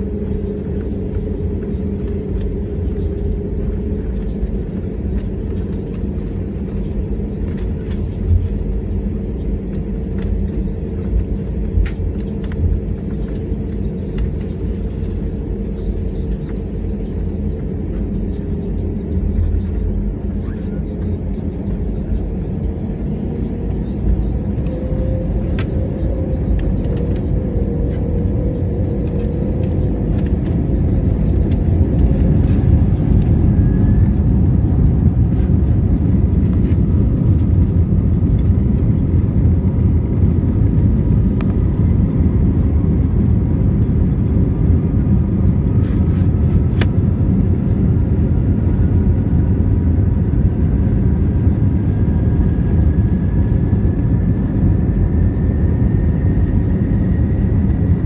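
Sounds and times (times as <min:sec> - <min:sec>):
faint whine rising in pitch: 0:00.0 - 0:58.0
rumble of jet engines and wheels: 0:00.0 - 0:58.0.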